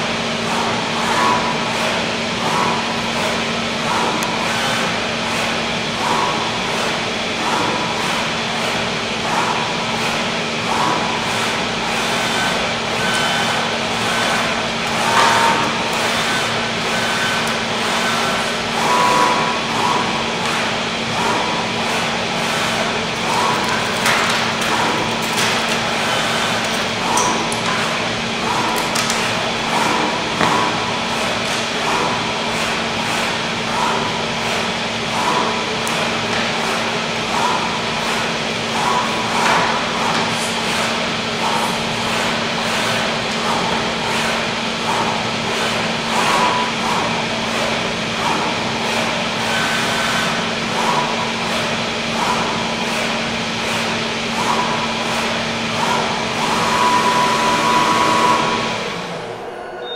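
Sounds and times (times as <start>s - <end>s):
cutting machine rushing hum: 0.0s - 59.9s
tool head whirring: 0.0s - 59.9s
sharp knocks and clatters: 23.2s - 32.2s.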